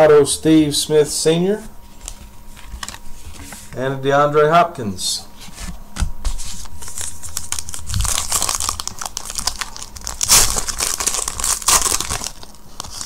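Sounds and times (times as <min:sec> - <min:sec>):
wrapper crinkling and tearing: 0:06.7 - 0:13.0.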